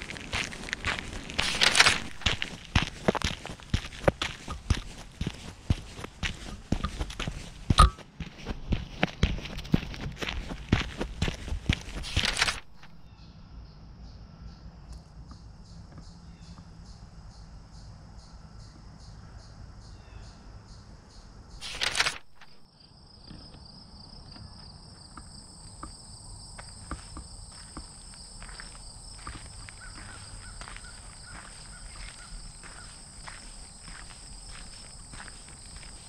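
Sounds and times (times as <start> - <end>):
footsteps on gravel: 0.0 - 13.1, 21.6 - 22.6, 26.6 - 36.0
insects chirping in pulses: 11.3 - 36.0
high insect trill: 15.6 - 36.0.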